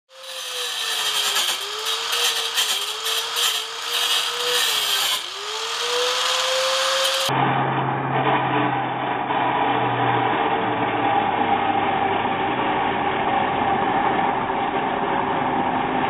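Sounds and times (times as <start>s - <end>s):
angle grinder grinding steel: 0.1s - 7.3s.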